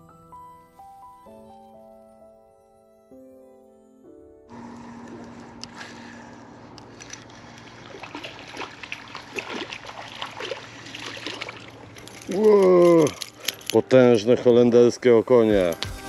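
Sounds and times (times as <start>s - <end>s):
low steady hum: 4.5s - 15.0s
water splashing and lapping: 4.7s - 13.7s.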